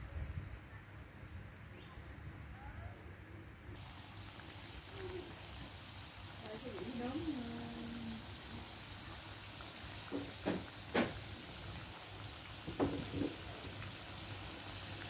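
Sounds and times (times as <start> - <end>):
dough sizzling in hot oil: 3.8 - 15.0.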